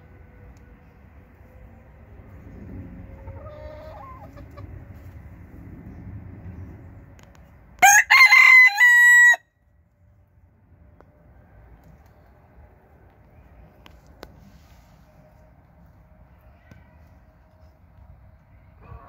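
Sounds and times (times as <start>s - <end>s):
rooster crowing: 7.8s - 9.5s.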